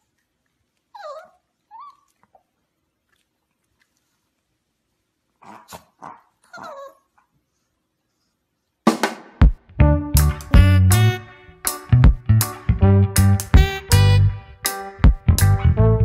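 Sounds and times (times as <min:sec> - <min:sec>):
dog whining yelps: 0:00.9 - 0:02.5, 0:05.4 - 0:07.2.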